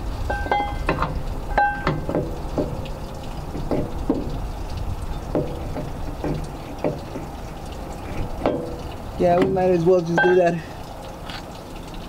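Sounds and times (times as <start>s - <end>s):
steady low rumble: 0.0s - 11.2s
metallic clinks and knocks: 0.3s - 4.3s.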